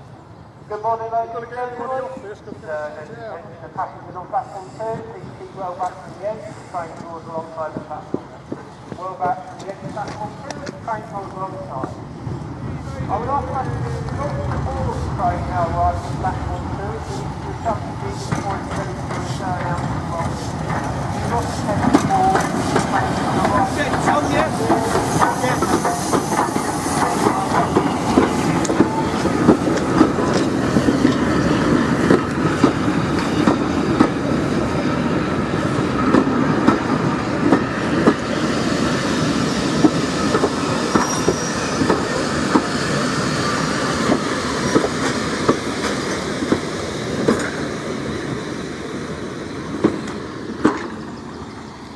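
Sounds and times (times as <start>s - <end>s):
train wheels rumbling: 2.0s - 51.9s
wheels clicking over rail joints: 18.2s - 31.2s.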